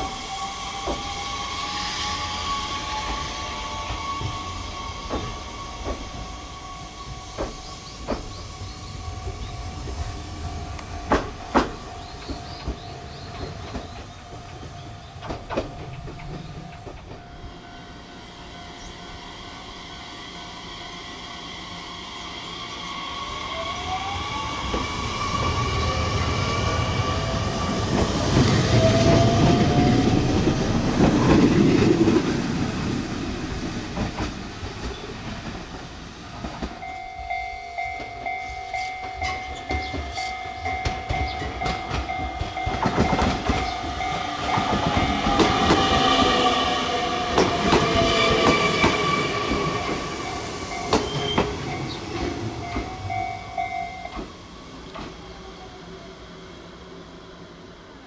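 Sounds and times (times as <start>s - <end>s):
train wheel rumble: 0.0s - 58.0s
wheels clicking over rail joints: 10.8s - 17.3s, 39.0s - 55.2s.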